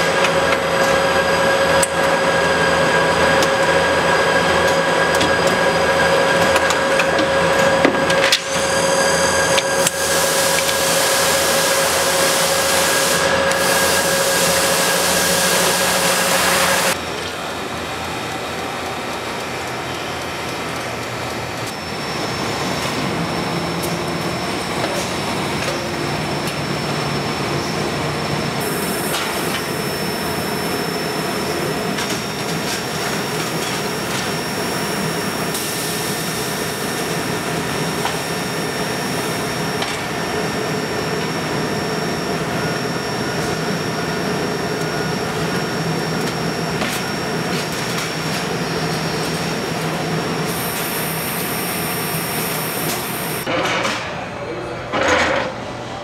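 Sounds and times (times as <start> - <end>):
furnace machinery noise: 0.0 - 56.0
faint high whine: 25.5 - 53.5.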